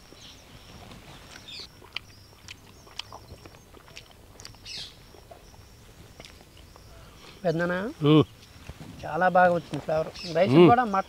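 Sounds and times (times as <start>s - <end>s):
high bird chirps: 4.5s - 8.6s.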